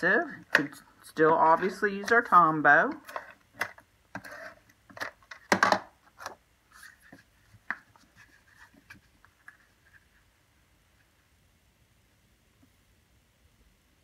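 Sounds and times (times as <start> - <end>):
cardstock rustling and rubbing: 4.2 - 5.2, 6.1 - 10.4.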